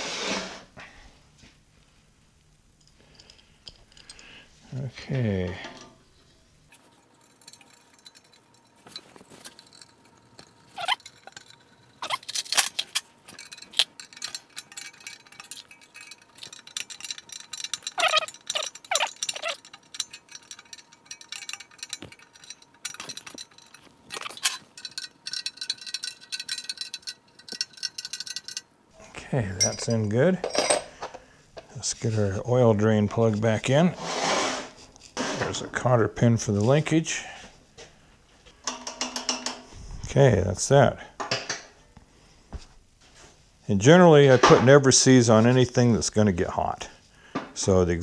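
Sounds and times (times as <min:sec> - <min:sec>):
metal tools clinking on metal: 0:02.8 - 0:05.9, 0:06.7 - 0:33.8.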